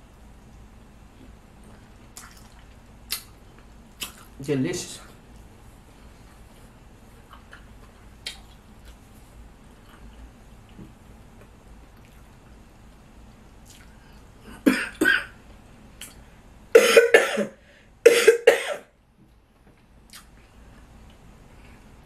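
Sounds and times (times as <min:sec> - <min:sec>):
woman coughing: 0:14.6 - 0:15.4, 0:16.8 - 0:18.9.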